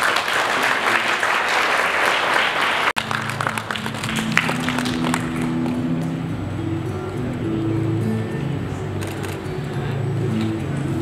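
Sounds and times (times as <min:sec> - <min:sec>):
audience applauding: 0:00.0 - 0:05.8
background music held notes: 0:03.0 - 0:11.0.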